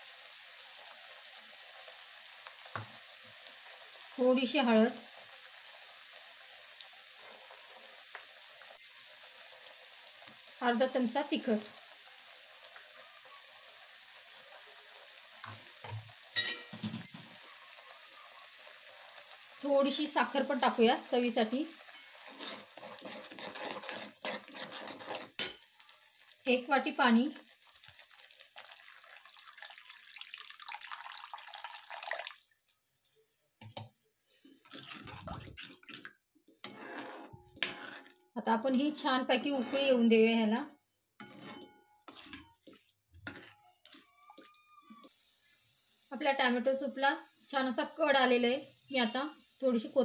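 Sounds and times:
water hissing in hot pan: 0.0s - 36.0s, 42.1s - 50.0s
soup simmering with sizzle: 0.0s - 39.0s, 41.3s - 50.0s
ladle clinking against pan: 16.4s - 17.2s
ladle scraping pan: 21.8s - 25.6s, 34.4s - 35.9s, 36.6s - 38.2s, 41.2s - 45.0s.

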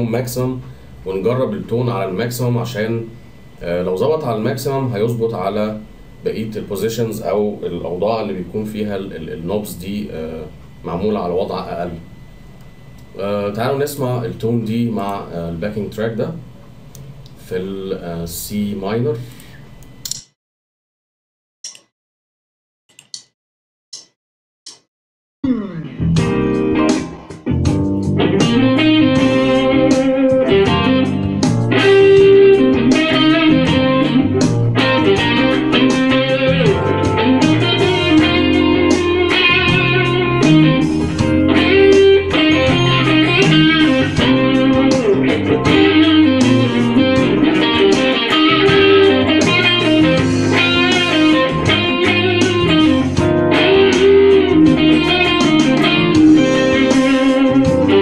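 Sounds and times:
backing track: 25.4s - 58.0s
overdriven electric guitar blues lead: 25.5s - 58.0s.

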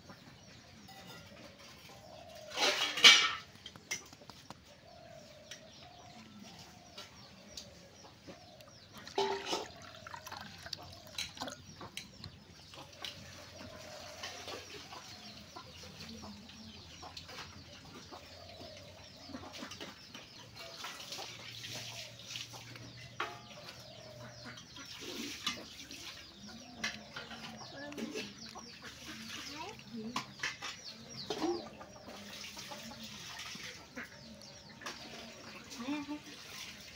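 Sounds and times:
birds calling: 0.0s - 36.9s
water pouring into bowl: 9.0s - 11.7s.

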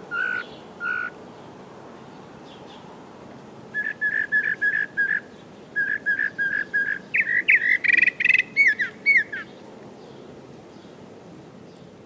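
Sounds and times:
mockingbird singing: 0.1s - 1.2s, 3.7s - 11.0s.

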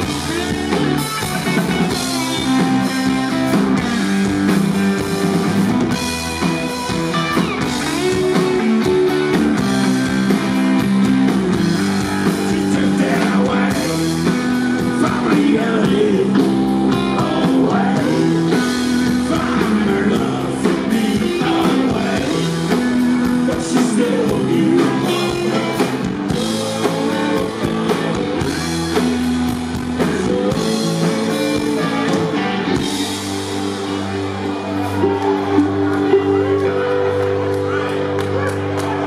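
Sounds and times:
bass guitar: 0.0s - 39.0s
drum kit: 0.0s - 39.0s
electric guitar: 0.0s - 39.0s
person singing: 11.7s - 28.6s, 29.7s - 33.6s.

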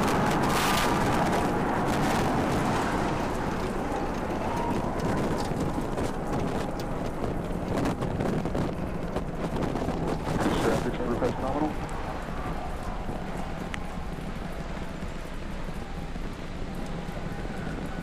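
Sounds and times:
rocket engines rumbling and crackling: 0.0s - 18.0s.

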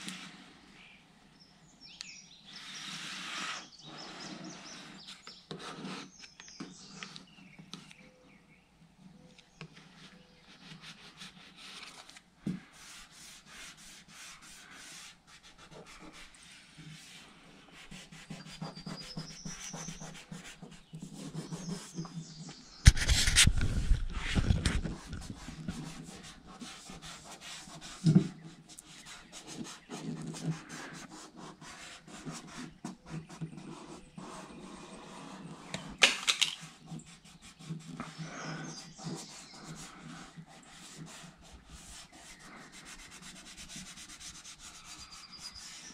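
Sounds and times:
squeegee rubbing and scratching: 2.5s - 7.0s, 9.8s - 45.9s.

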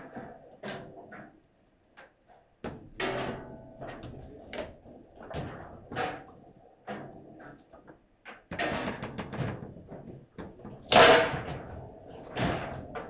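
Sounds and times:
foosball rods clattering ball: 10.7s - 13.0s.

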